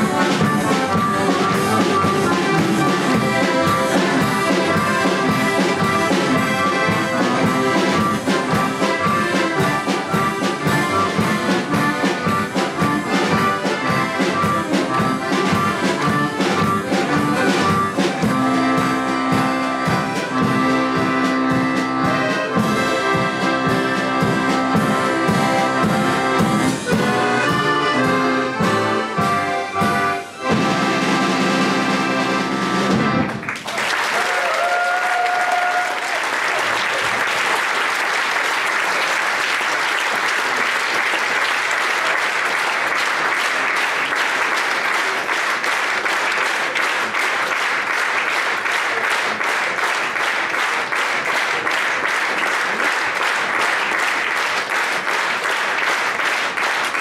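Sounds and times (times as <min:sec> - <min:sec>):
accordion orchestra playing: 0:00.0 - 0:33.6, 0:36.8 - 0:57.0
audience applauding: 0:33.2 - 0:57.0.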